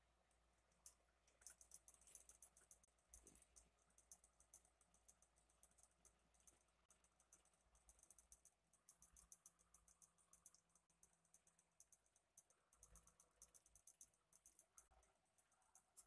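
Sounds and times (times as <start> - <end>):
faint high-pitched clicks: 0.2 - 16.0.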